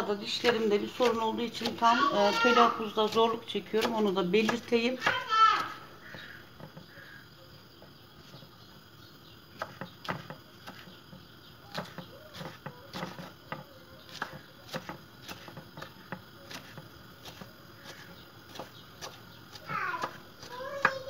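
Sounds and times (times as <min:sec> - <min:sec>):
knife chopping on wooden board: 0:03.0 - 0:06.8, 0:09.6 - 0:11.0, 0:11.7 - 0:21.0.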